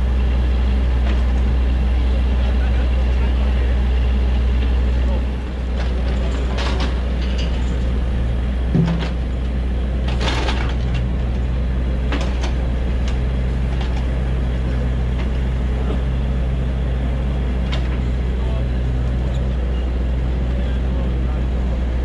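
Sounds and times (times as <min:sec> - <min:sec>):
excavator engine running: 0:00.0 - 0:22.0
heavy thump: 0:08.7 - 0:09.2
knocks and clanks of logs: 0:08.7 - 0:09.3.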